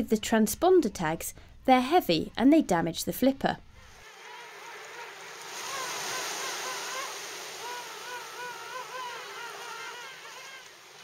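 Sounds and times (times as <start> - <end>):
sea water hiss: 4.1 - 11.0.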